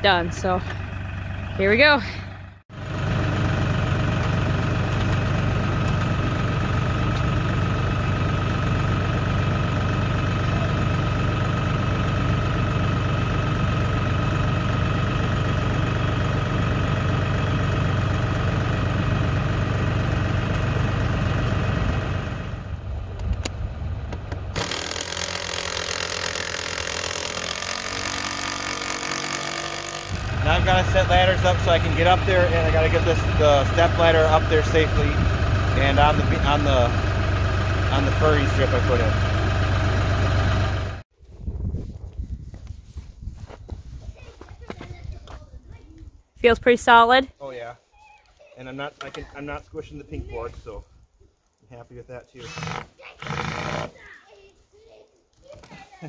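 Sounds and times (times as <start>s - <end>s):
tractor engine idling: 0.0s - 41.0s.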